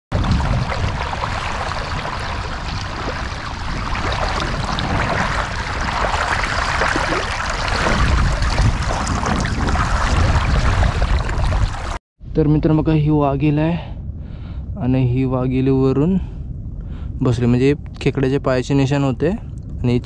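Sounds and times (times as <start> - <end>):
wind on microphone: 0.1 - 20.0
water trickling over mud: 0.2 - 12.0.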